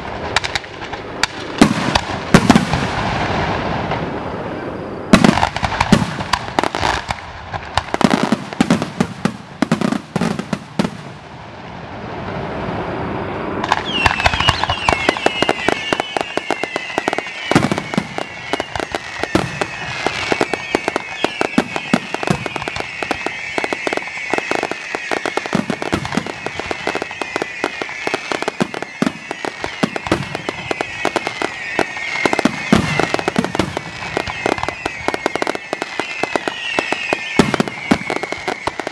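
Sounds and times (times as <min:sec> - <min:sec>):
fireworks crackling: 0:00.0 - 0:38.9
firework shells bursting: 0:13.6 - 0:38.9
high wavering whistles: 0:13.6 - 0:38.9.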